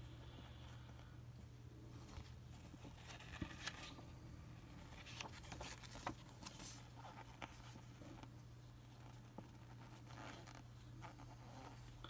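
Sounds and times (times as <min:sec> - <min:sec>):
steady low hum: 0:00.0 - 0:12.0
paper pages rustling: 0:01.9 - 0:04.1, 0:04.7 - 0:08.3.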